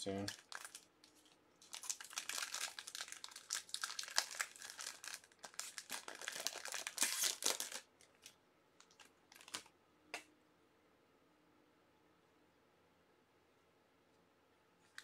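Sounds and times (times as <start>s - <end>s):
plastic wrapping crinkling and tearing: 0.2s - 9.7s.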